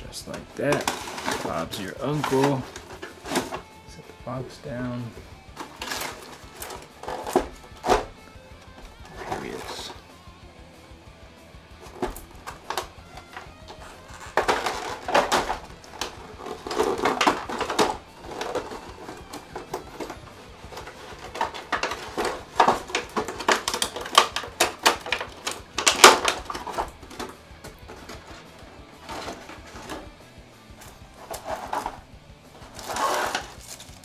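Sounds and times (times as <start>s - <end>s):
packaging rustling: 0.0s - 3.7s, 5.1s - 10.0s, 11.7s - 30.1s, 30.8s - 34.0s
quiet background music: 0.0s - 34.0s
sharp plastic clicks: 12.1s - 27.3s.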